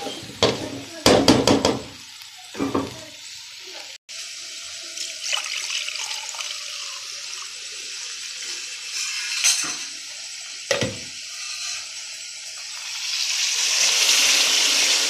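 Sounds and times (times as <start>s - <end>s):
tap water running into metal pot: 0.3s - 15.0s
stirring scrape in pan: 8.4s - 10.0s, 11.2s - 12.2s.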